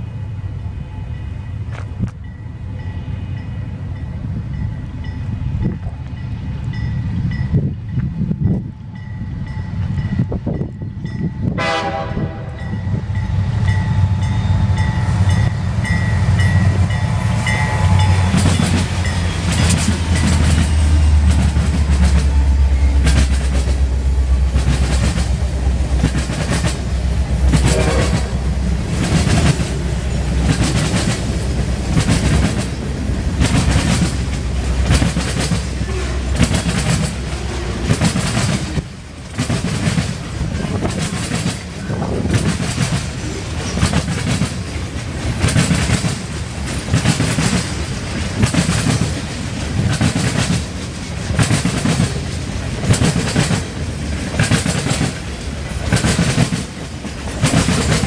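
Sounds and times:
diesel locomotive engine rumble: 0.0s - 58.0s
train wheels clacking on rail joints: 4.5s - 58.0s
train horn: 11.5s - 13.3s, 27.4s - 28.8s, 35.8s - 36.5s.

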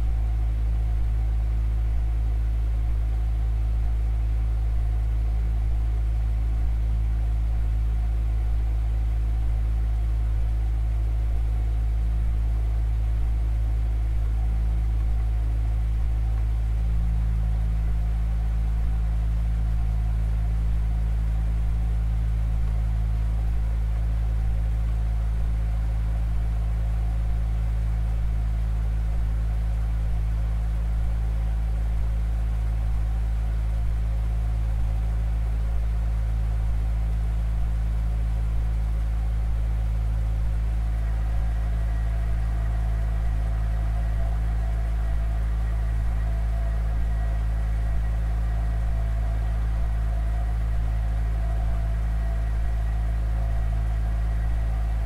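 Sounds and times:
pipe organ drone: 40.7s - 55.0s.

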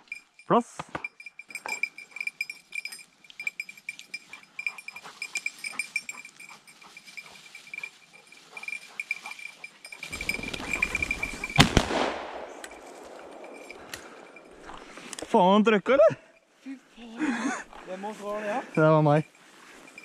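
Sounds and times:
shotgun shot: 11.6s - 12.6s.

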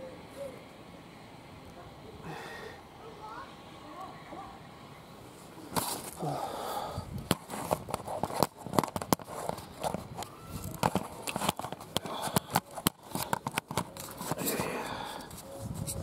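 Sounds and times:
camera handling knocks and rubbing: 7.3s - 14.5s.

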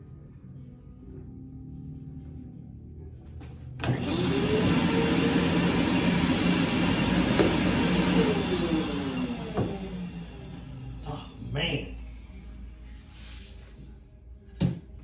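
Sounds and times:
vacuum motor whine: 3.8s - 11.4s.

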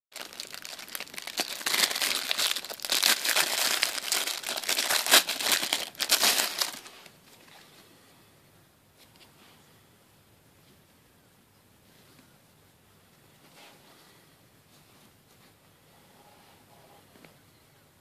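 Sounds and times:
plastic bag crinkling: 0.1s - 7.1s.

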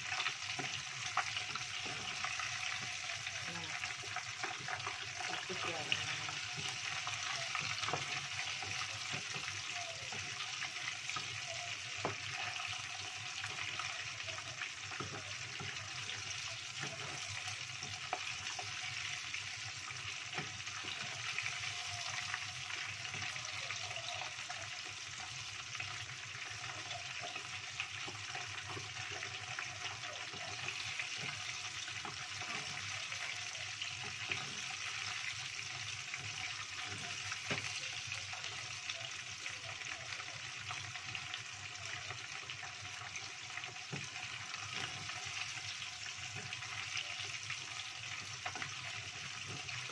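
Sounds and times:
chicken sizzling in hot oil: 0.0s - 49.9s.

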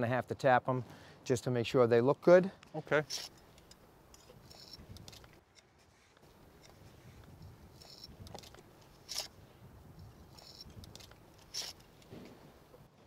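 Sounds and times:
sharp trowel click: 7.8s - 9.4s, 10.3s - 12.1s
trowel scraping wet mortar: 10.2s - 12.0s.

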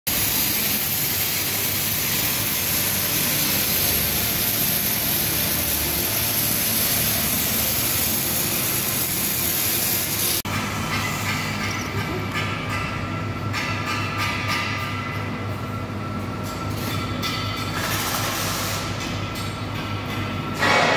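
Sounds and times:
workshop machinery rushing hiss: 0.1s - 10.5s, 17.8s - 19.0s.

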